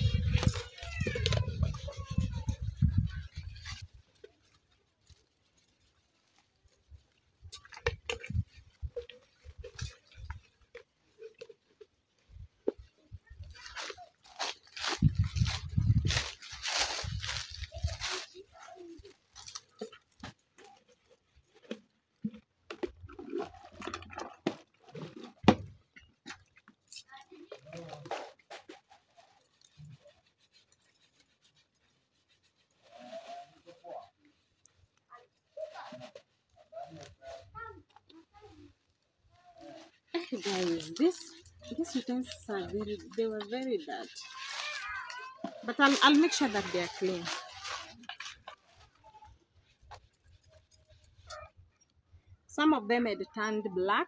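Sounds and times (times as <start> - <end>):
sponge scrubbing plastic: 0.0 - 51.5
plastic cups clattering: 21.4 - 26.0.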